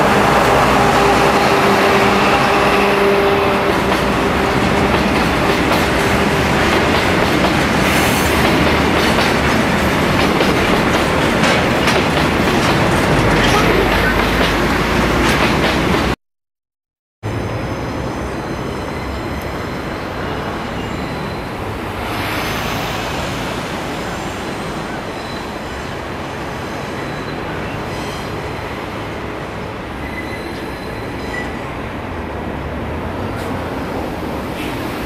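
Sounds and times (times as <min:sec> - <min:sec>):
high wheel squeal: 0:18.2 - 0:21.8, 0:30.0 - 0:31.7.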